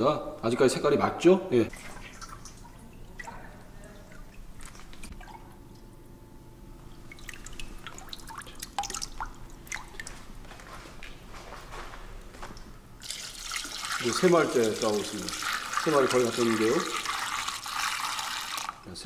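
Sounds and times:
liquid dripping and splashing: 0:01.7 - 0:05.9, 0:06.8 - 0:10.4, 0:12.5 - 0:18.9.

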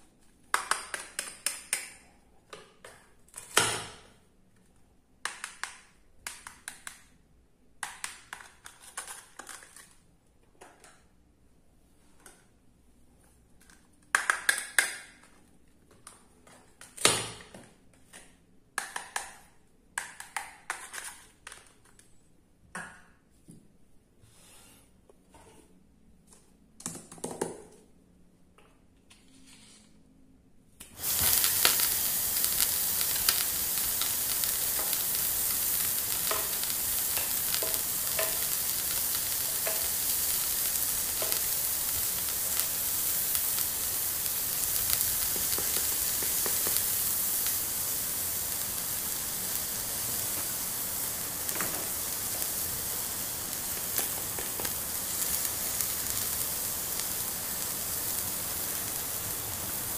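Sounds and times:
toy grill frying sizzle: 0:30.9 - 0:59.9.

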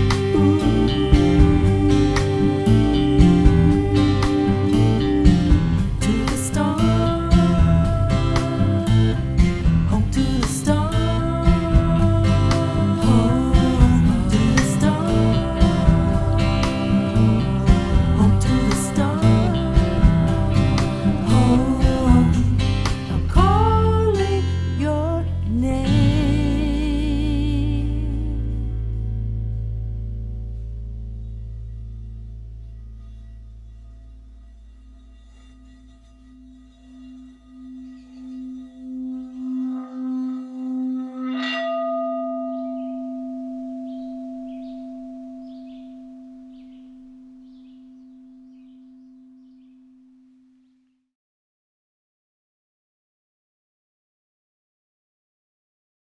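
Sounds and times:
strummed guitar chords: 0:00.0 - 0:33.6
sustained bent guitar notes: 0:00.0 - 0:49.7
low bass note: 0:00.0 - 0:49.8
struck bell ringing: 0:36.8 - 0:49.6.

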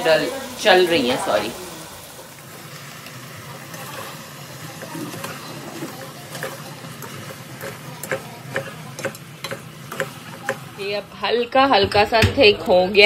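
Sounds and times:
low sizzle: 0:00.0 - 0:13.0
spatula scraping a pan: 0:03.1 - 0:11.0.

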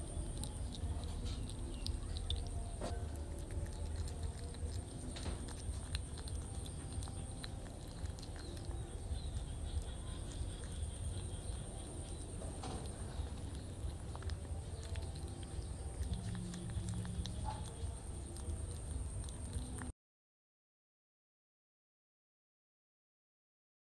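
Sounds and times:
kitten chewing: 0:00.0 - 0:19.9
steady low hum: 0:00.0 - 0:19.9.

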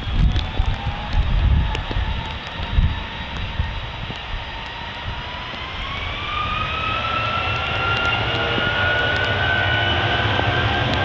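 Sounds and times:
jet engines spooling up: 0:00.0 - 0:11.0.

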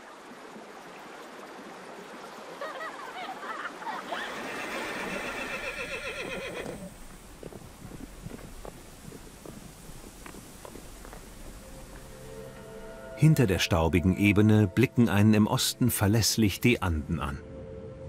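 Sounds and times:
water rushing along channel: 0:00.0 - 0:13.0
horse whinnying: 0:04.1 - 0:07.0
hoofbeats on grass: 0:05.2 - 0:12.3.

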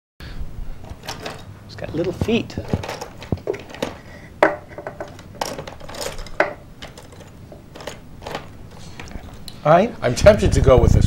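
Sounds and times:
plastic toy figures clattering: 0:00.8 - 0:09.5.

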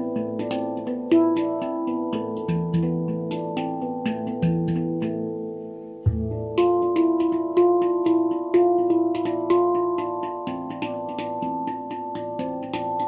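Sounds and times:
handpan notes ringing: 0:00.0 - 0:13.0
deep bass handpan note: 0:06.0 - 0:11.7.

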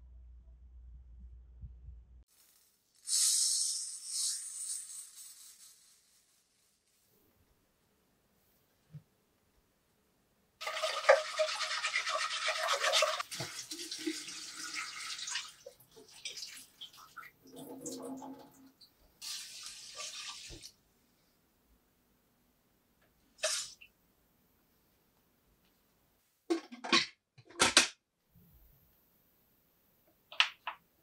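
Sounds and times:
tap water running into metal pot: 0:10.6 - 0:15.7
water swirled and poured off: 0:10.6 - 0:20.7.

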